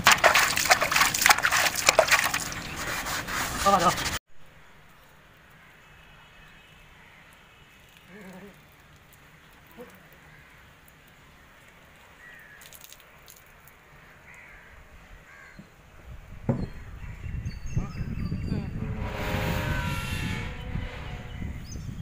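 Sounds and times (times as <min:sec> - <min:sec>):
crows cawing: 0:14.2 - 0:15.7.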